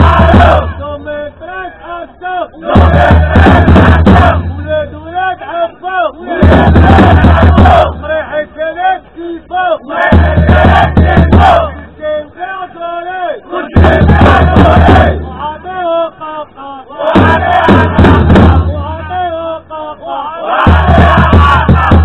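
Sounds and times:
drum beats: 0.0 - 1.1, 2.6 - 5.1, 6.3 - 8.2, 10.0 - 12.0, 13.7 - 15.6, 17.0 - 19.3, 20.5 - 22.0
crowd shouting in unison: 0.0 - 4.8, 5.4 - 22.0
leader singing through loudspeaker: 0.0 - 22.0.

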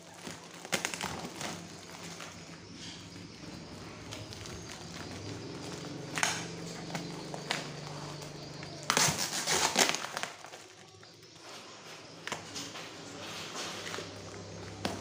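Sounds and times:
crinkles and scrapes: 0.0 - 15.0
packing tape being ripped off: 8.8 - 10.7.

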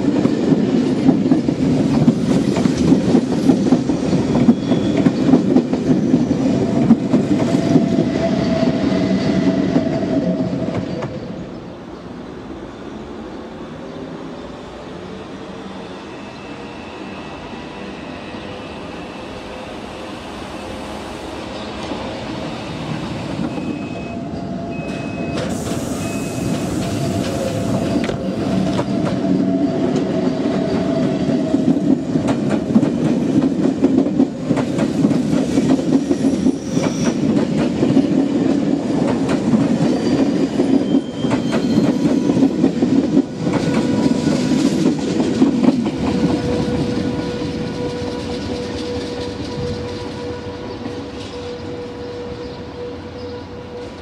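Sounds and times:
train wheels clattering over rails: 0.0 - 11.2, 24.8 - 51.6
brief high tone: 23.5 - 28.1.

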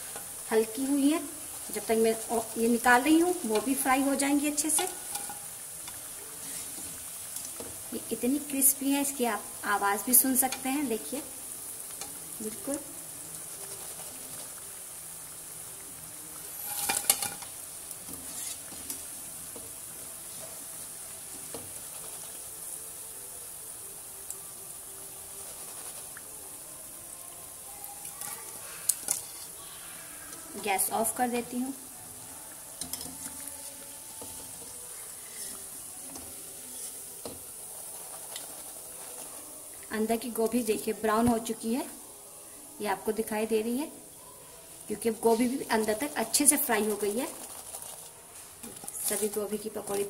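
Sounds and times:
hot oil sizzling: 0.0 - 50.0.

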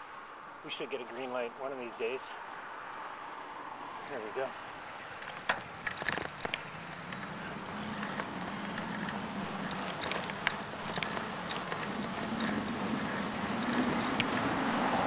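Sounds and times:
bicycle road and wind hum: 0.0 - 15.0
bicycle clicks and rattles: 5.2 - 15.0.

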